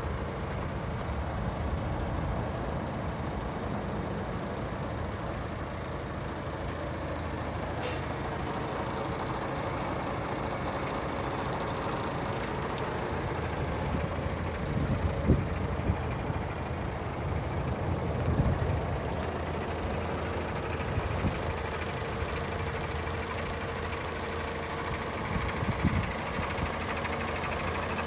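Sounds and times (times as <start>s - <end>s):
diesel truck engine idling: 0.0s - 28.0s
air brake hiss: 7.8s - 8.3s.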